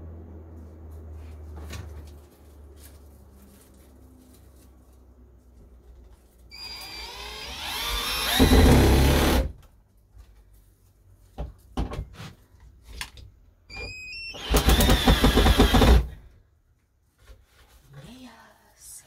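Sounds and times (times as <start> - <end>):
cordless drill driving screws: 6.5 - 9.5, 14.2 - 16.1.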